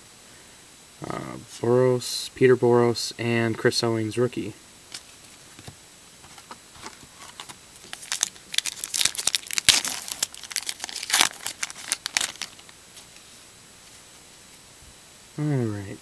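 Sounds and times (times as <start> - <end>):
card pack wrapper tearing and crinkling: 6.2 - 12.8.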